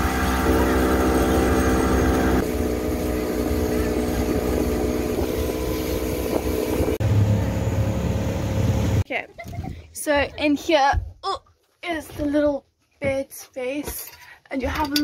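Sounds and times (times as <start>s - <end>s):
rushing wind and water: 0.0s - 7.0s
deeper hum: 0.0s - 9.0s
outboard motor running: 0.0s - 9.0s.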